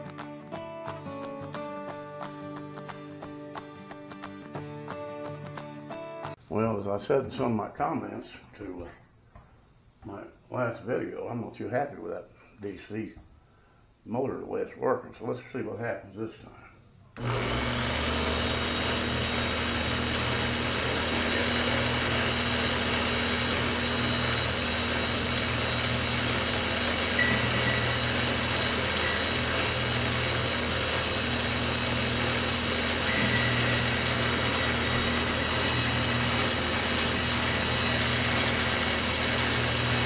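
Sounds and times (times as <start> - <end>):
lathe motor humming: 17.2 - 40.0.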